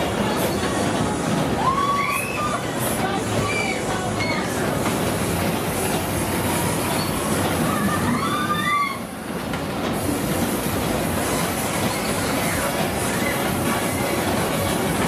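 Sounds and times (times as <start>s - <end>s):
fairground ride rumbling clatter: 0.0s - 15.0s.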